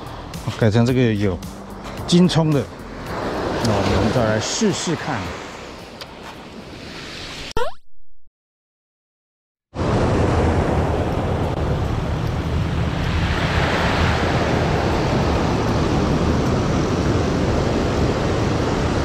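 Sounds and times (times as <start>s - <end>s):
surf washing onto beach: 3.0s - 6.0s, 9.8s - 19.0s
wind buffeting microphone: 9.8s - 19.0s.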